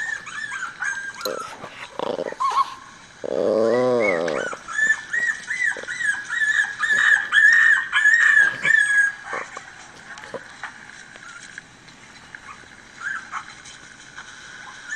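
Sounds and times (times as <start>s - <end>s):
dog whimpering: 0.0s - 10.5s.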